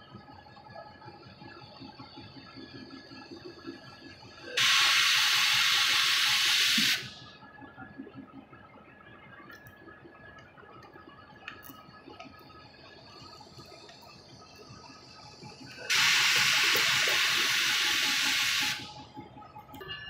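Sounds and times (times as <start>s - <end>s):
compressed air hissing from air brakes: 4.6s - 7.2s, 15.5s - 19.0s.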